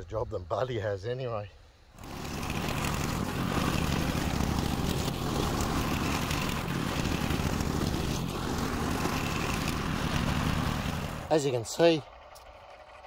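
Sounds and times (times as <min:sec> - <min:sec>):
tines chopping soil: 0:02.0 - 0:11.5
tiller engine running: 0:02.0 - 0:13.0.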